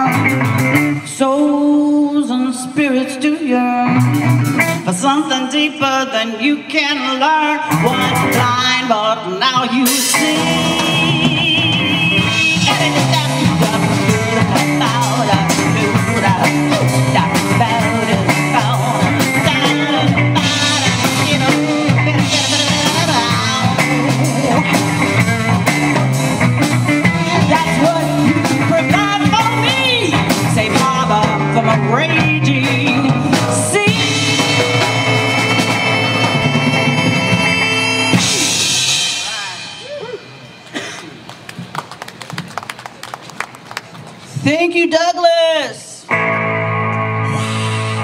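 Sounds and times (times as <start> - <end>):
drum kit: 0.0 - 1.1, 9.8 - 41.9
person singing: 0.0 - 36.4
electric guitars: 0.0 - 42.3, 45.8 - 48.0.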